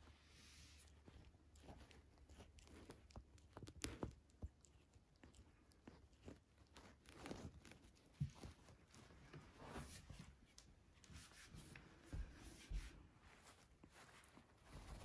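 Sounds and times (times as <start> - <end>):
paper towel crinkling: 6.8 - 15.0.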